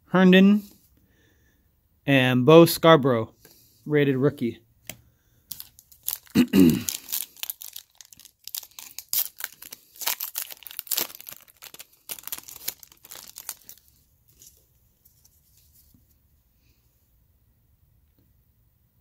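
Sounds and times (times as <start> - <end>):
cards rustling: 4.8 - 16.2
foil wrapper tearing and crinkling: 5.5 - 14.5.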